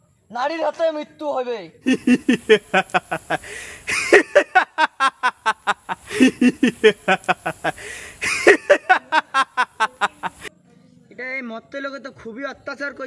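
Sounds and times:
man laughing loudly: 0:01.9 - 0:10.5
sharp breath drawn in: 0:03.4 - 0:04.0, 0:07.7 - 0:08.3.

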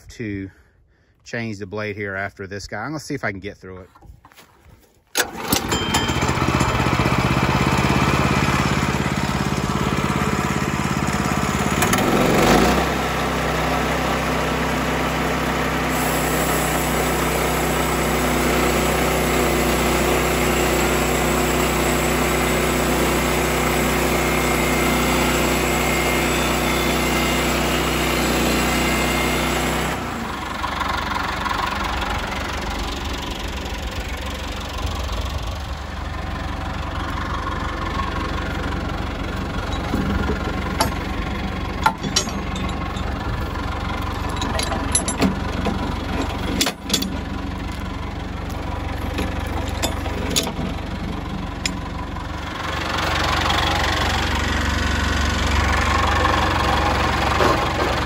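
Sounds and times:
sawmill engine running: 0:03.1 - 0:58.0
band saw blade cutting wood: 0:11.6 - 0:13.0, 0:15.9 - 0:30.2.

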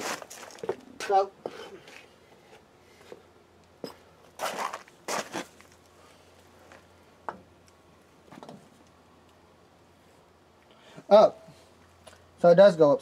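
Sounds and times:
short scuffing: 0:00.0 - 0:02.1, 0:03.8 - 0:05.8.

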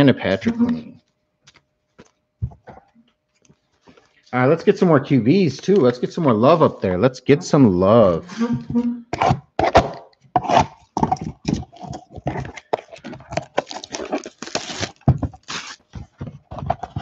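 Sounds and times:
plastic wrap crinkling and tearing: 0:10.5 - 0:17.0.

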